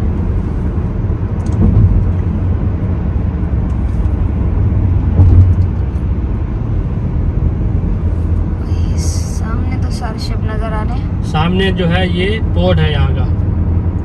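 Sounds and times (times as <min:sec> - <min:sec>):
car road and engine rumble: 0:00.0 - 0:14.0.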